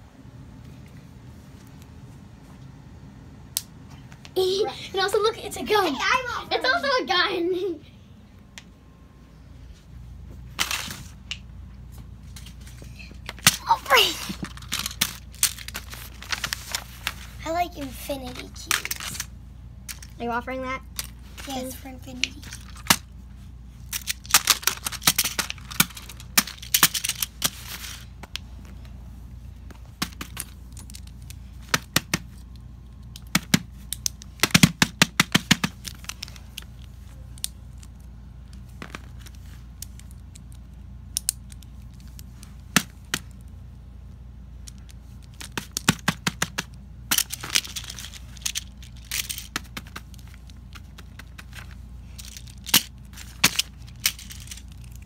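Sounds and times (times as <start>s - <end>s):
paper rustling: 13.8s - 17.4s
fidget toys clicking and tapping: 17.8s - 19.3s, 23.9s - 27.6s, 30.0s - 43.5s, 44.7s - 55.0s.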